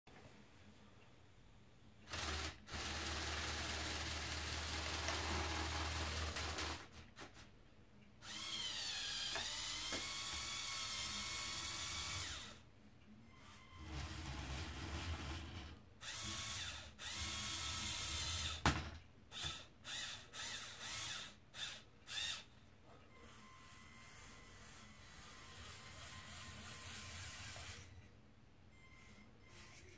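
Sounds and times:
small electric motor whining: 8.2s - 12.6s, 13.3s - 18.6s, 19.3s - 22.5s, 23.1s - 28.0s, 28.9s - 29.9s.

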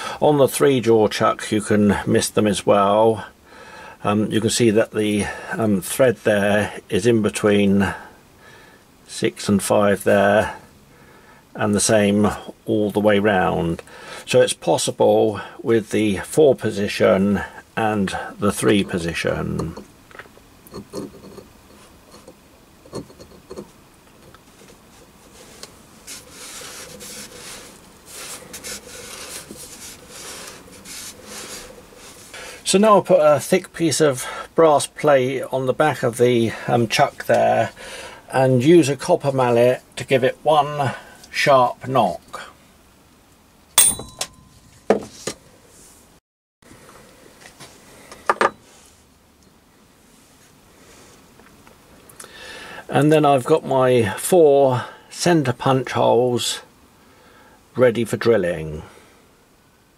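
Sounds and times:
metal scraping on plywood: 25.3s - 32.3s
mallet knocking on brass plate: 43.8s - 44.6s.

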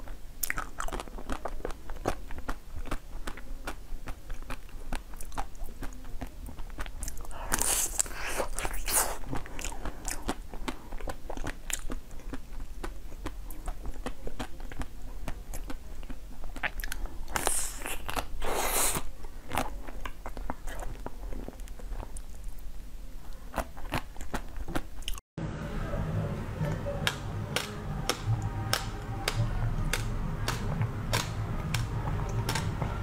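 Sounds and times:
chocolate shell crunching: 0.0s - 22.5s
biting frozen fruit: 0.0s - 22.7s, 23.3s - 25.2s
low hum: 25.4s - 33.0s.

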